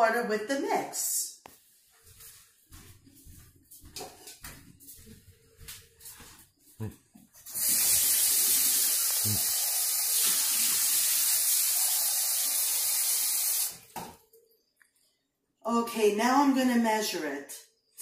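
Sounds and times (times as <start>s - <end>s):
faucet running water: 7.4s - 14.0s.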